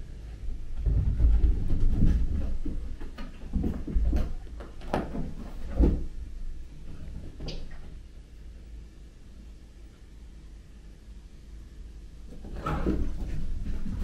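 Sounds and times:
cats play-fighting on carpet: 0.0 - 8.7, 12.2 - 14.0.

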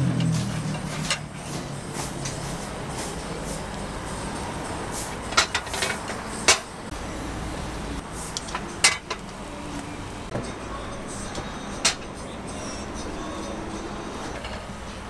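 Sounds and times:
steady background noise: 0.0 - 15.0
metal molds clicking and clanking: 5.3 - 6.7, 8.4 - 9.3.

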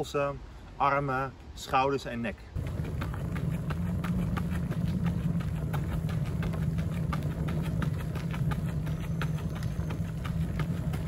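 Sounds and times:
steady low rumble: 2.5 - 11.0
footsteps crunching on gravel: 2.6 - 11.0.

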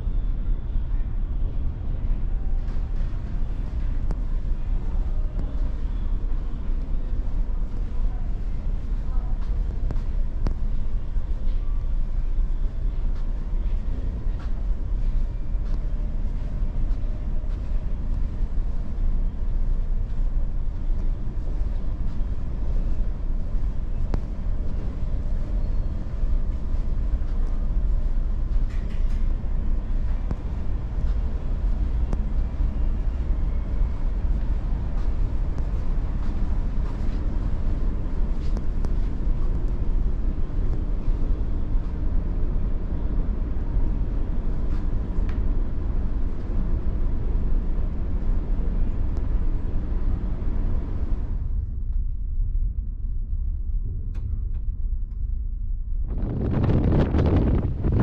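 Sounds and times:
faint hum: 0.0 - 58.0
ship engines rumbling: 56.1 - 58.0.

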